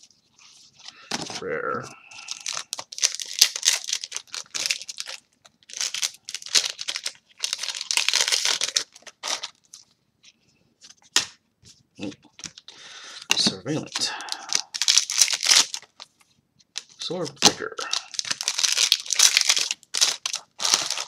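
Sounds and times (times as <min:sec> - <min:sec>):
foil wrappers crinkling and tearing: 0:02.1 - 0:09.8, 0:13.9 - 0:16.1, 0:17.8 - 0:21.0.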